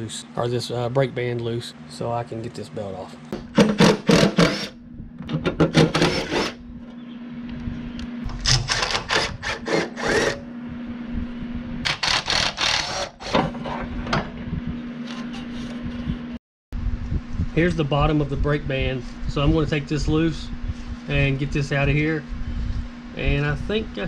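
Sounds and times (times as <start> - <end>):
low hum: 3.0 - 24.0
rapid mechanical clicking of hand tool: 11.9 - 13.2.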